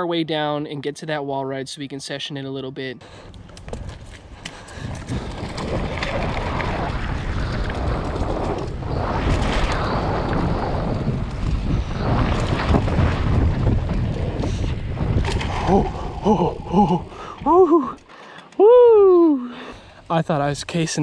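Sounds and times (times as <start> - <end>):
bike knocks and rattles: 3.4 - 6.8
wind rushing over microphone: 3.7 - 17.7.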